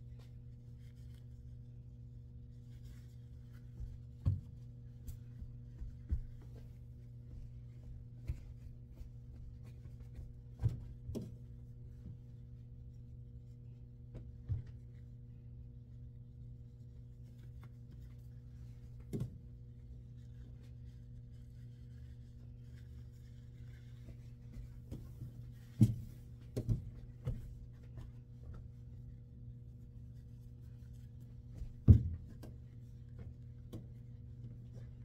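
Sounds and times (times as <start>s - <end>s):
low electrical machinery hum: 0.0s - 35.0s
knocks and clicks of laundry: 3.6s - 12.3s, 24.6s - 28.8s, 31.4s - 35.0s.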